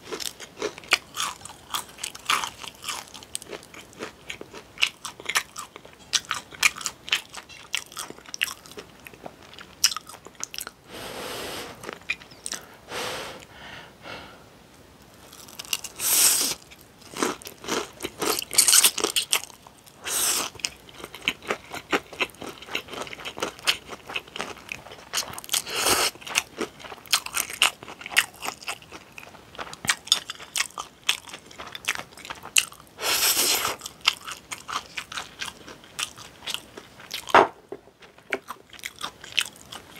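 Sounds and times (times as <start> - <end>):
slurping noodles: 33.0 - 33.8.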